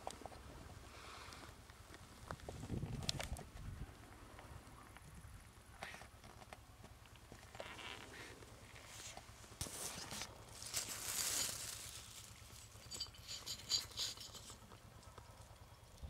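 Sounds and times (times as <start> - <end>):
hand rustling through grass: 8.8 - 12.6.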